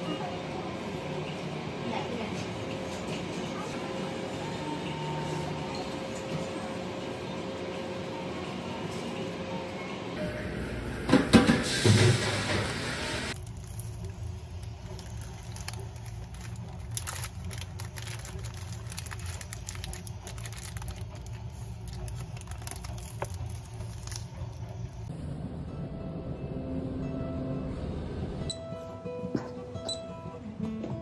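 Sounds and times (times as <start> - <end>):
low steady hum: 13.2 - 28.7
paper wrapper crinkling: 13.4 - 25.0.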